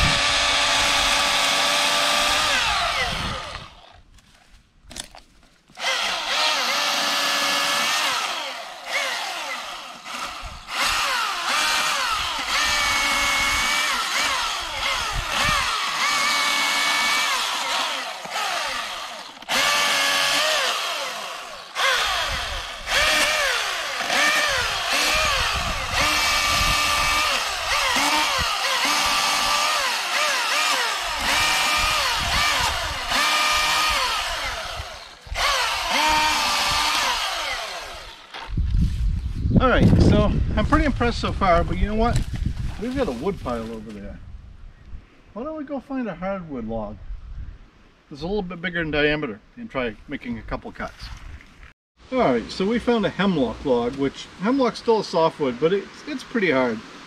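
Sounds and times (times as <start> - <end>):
electric chainsaw cutting wood: 0.0 - 4.0, 5.8 - 38.6.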